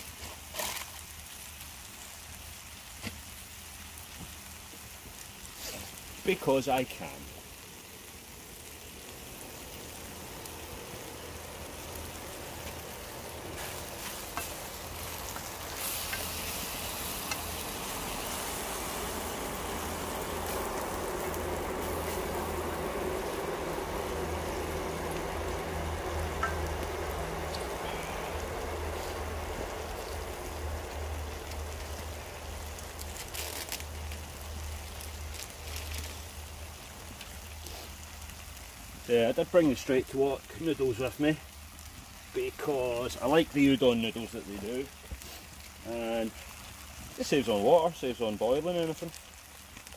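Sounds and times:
food sizzling in frying pan: 0:00.0 - 0:49.9
sharp clicks and ticks: 0:17.2 - 0:27.8.

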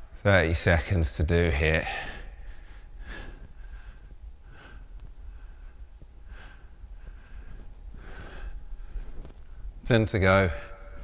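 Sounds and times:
low steady hum: 0:00.0 - 0:11.0
man breathing with strain: 0:01.8 - 0:09.7.

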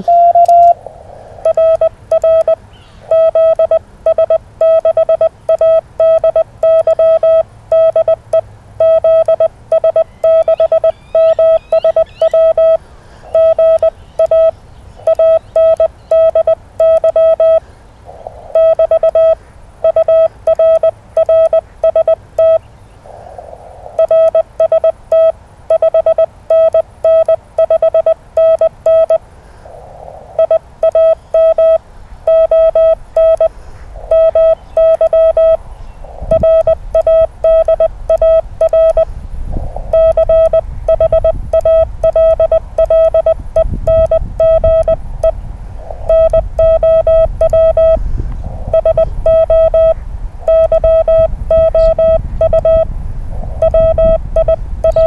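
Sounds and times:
morse code beeps: 0:00.0 - 0:00.8, 0:01.4 - 0:17.6, 0:18.5 - 0:22.6, 0:24.0 - 0:29.2, 0:30.4 - 0:35.6, 0:36.2 - 0:39.1, 0:39.9 - 0:45.4, 0:46.1 - 0:48.0, 0:48.7 - 0:52.9, 0:53.6 - 0:55.0
radio hiss: 0:00.0 - 0:04.2, 0:10.3 - 0:55.0.

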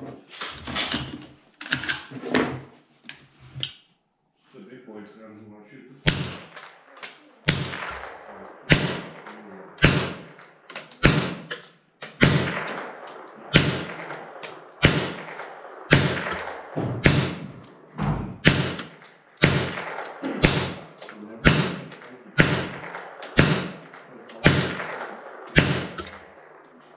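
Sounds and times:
rifle shots echoing: 0:06.0 - 0:26.9.

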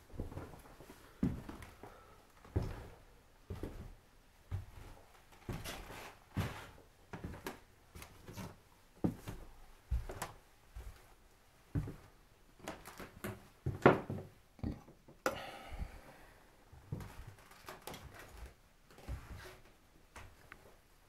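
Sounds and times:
knocks and thuds in room: 0:13.7 - 0:15.2.

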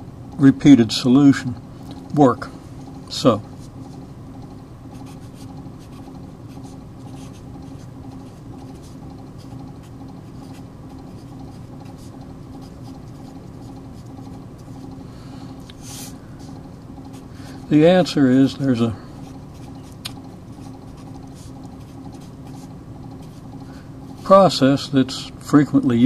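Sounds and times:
steady low hum: 0:00.0 - 0:26.0
marker scratching on paper: 0:04.9 - 0:15.0, 0:19.2 - 0:24.4.

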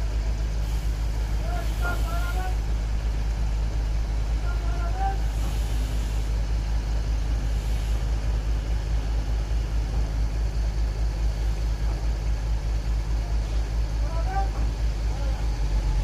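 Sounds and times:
diesel engines droning: 0:00.0 - 0:16.0.

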